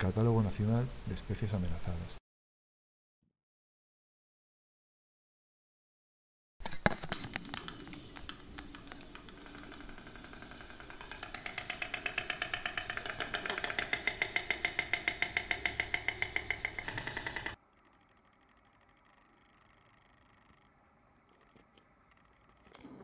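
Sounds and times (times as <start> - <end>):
stork clattering its bill: 6.6 - 20.7.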